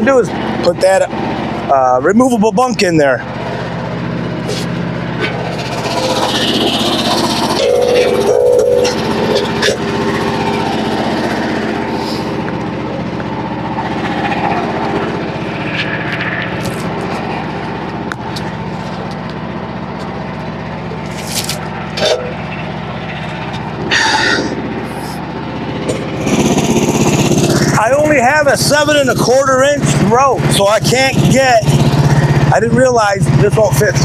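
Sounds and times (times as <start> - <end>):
small gasoline engine idling: 0.0 - 34.0.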